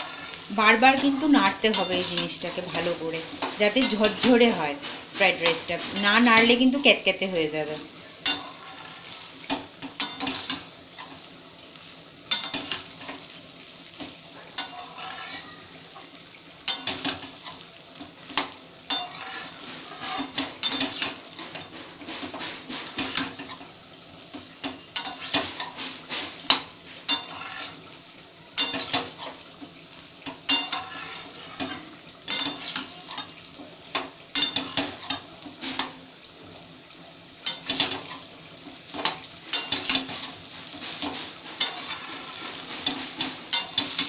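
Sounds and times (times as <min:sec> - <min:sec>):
spatula scraping steel pan: 0:00.0 - 0:07.1, 0:08.2 - 0:11.3, 0:14.6 - 0:15.6, 0:18.4 - 0:23.7, 0:25.0 - 0:27.9, 0:30.4 - 0:33.4, 0:38.9 - 0:44.0
faint frying sizzle: 0:00.0 - 0:44.0.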